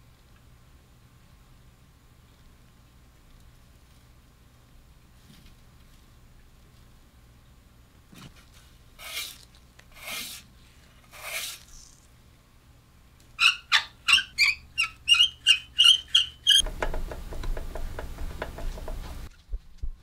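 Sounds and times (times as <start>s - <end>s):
short scrapes: 8.2s - 12.1s
crank knob squeaking: 13.4s - 16.7s.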